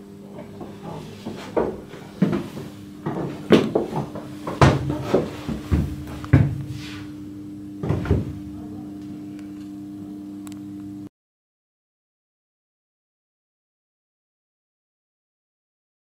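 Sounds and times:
machinery hum: 0.0s - 11.1s.

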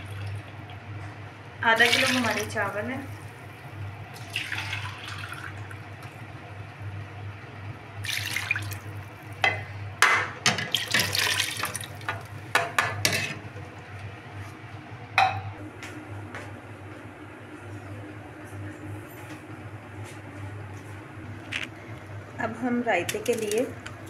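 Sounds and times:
steady low hum: 0.0s - 24.0s
stock pouring and splashing into pot: 4.2s - 5.7s, 8.0s - 8.8s, 10.7s - 12.0s.

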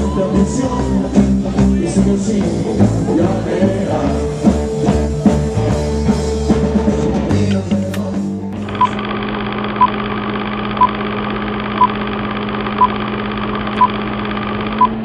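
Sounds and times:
rattling projector whir: 8.6s - 15.0s
short high beeps: 13.8s - 14.0s.

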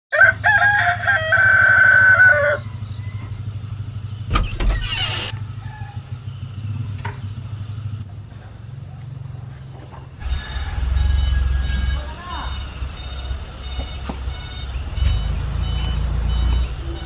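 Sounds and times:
rooster crowing: 0.1s - 3.4s, 4.9s - 6.3s, 10.2s - 14.8s.

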